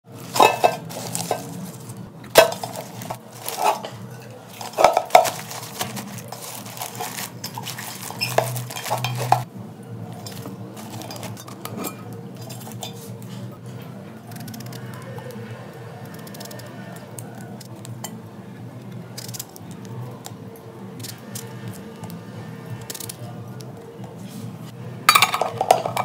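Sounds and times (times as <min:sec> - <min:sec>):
metal pot clanking: 0:00.2 - 0:09.5, 0:25.1 - 0:26.0.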